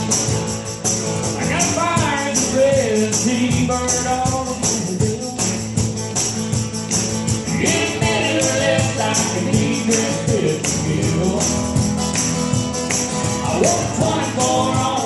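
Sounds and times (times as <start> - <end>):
acoustic guitar: 0.0 - 15.0
jingling percussion: 0.0 - 15.0
person singing: 7.5 - 11.8, 13.4 - 15.0.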